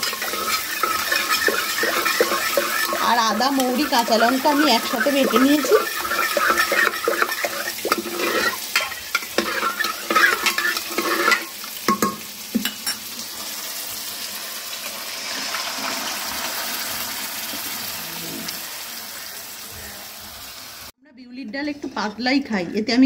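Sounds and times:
spoon clinking against metal pot: 0.0 - 13.0
spices sizzling in hot oil: 0.0 - 20.9.

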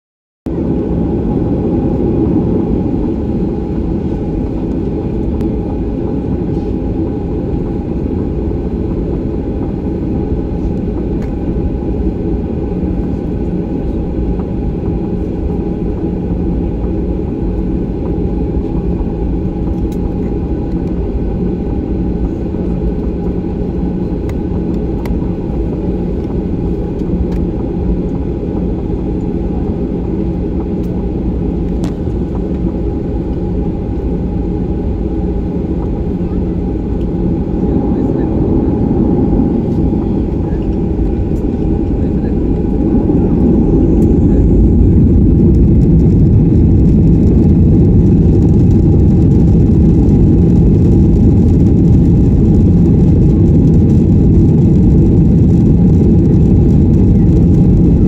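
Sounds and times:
aircraft engine hum inside cabin: 0.5 - 58.0.

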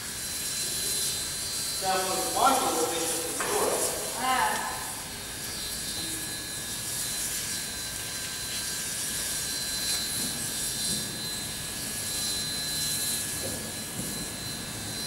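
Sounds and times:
machinery hiss: 0.0 - 7.6
high steady whining tones: 0.0 - 15.0.

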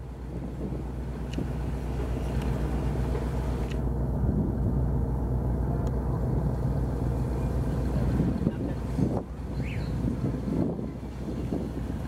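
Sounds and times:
wind noise: 0.0 - 5.0, 7.6 - 12.0
boat engine droning: 0.0 - 12.0
water noise: 0.0 - 12.0.

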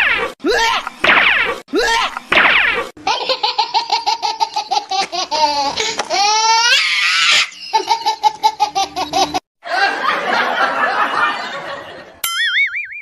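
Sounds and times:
high-pitched laughter: 3.0 - 10.1.

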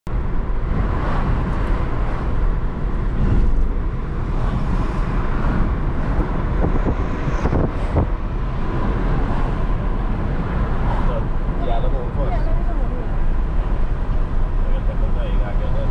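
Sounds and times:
car road and engine noise: 0.1 - 15.9.

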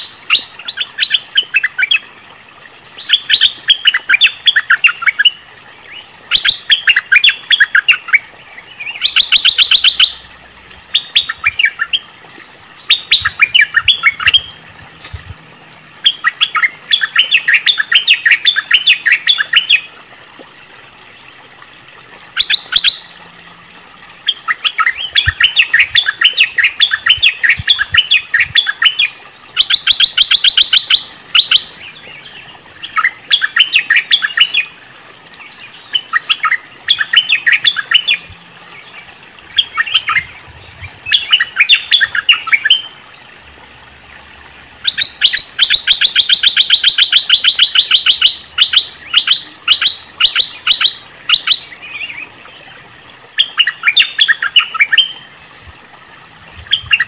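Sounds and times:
bird chattering calls: 12.8 - 15.3.

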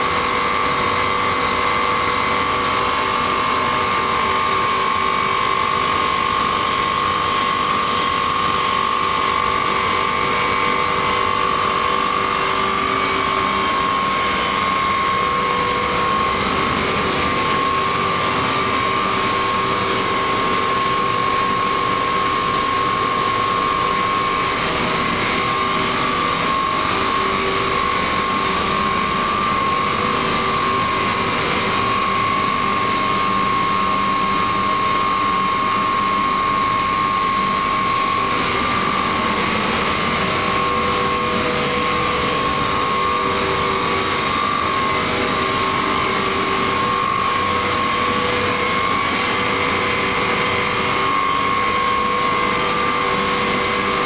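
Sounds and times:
boiler burner and fan motor: 0.0 - 54.0
constant high whine: 0.0 - 54.0.

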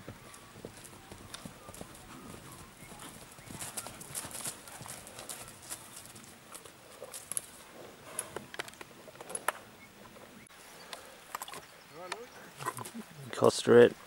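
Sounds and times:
horse hooves on grass: 0.0 - 10.3.

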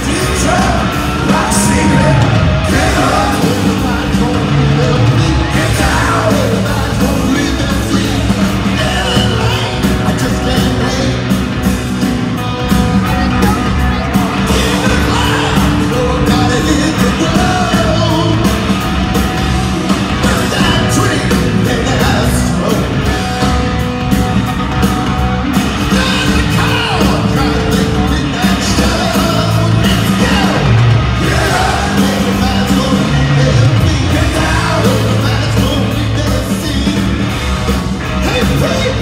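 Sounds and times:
person singing: 0.0 - 11.4, 13.2 - 18.6
live hard rock band: 0.0 - 39.0.

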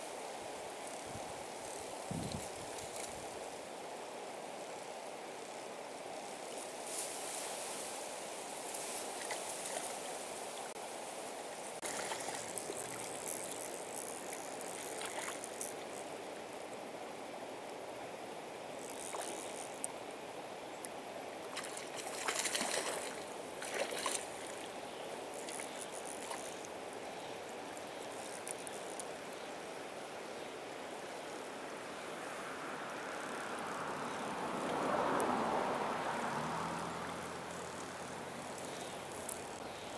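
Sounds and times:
river current flowing: 0.0 - 39.9
fish splashing at surface: 21.6 - 24.3.

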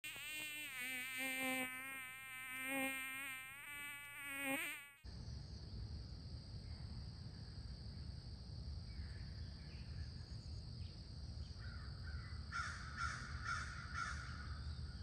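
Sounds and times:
bee buzzing: 0.0 - 5.0
high insect drone: 0.0 - 14.6.

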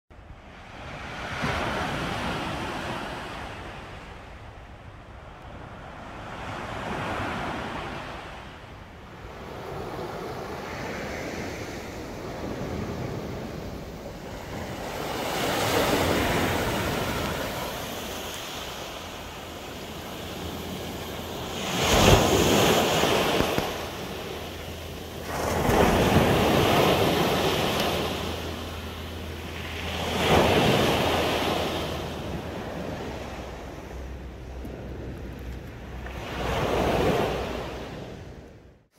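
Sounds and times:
waves breaking on pebbles: 15.0 - 24.6.

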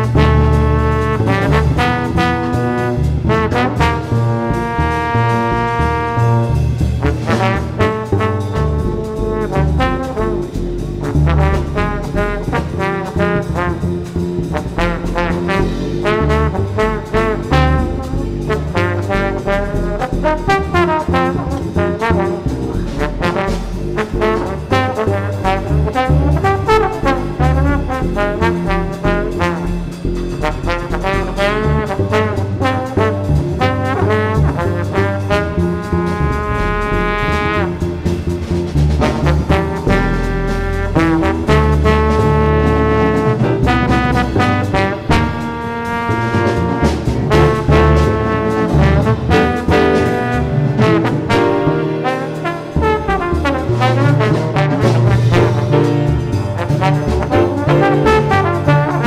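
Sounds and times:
drums: 0.0 - 59.0
trombone solo: 0.0 - 59.0
walking double bass: 0.0 - 59.0.

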